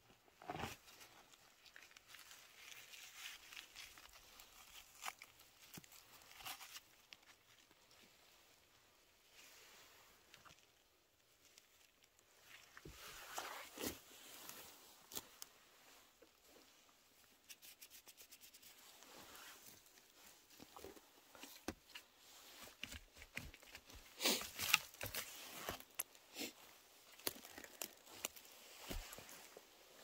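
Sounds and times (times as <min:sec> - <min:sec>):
dry leaf litter rustling: 0:24.2 - 0:29.7.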